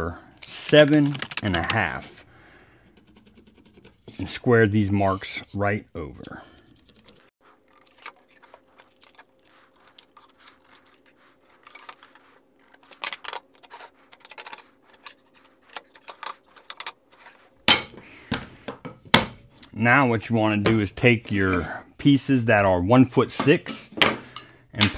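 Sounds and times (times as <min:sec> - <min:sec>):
pencil scratching on wood: 0:02.6 - 0:04.6.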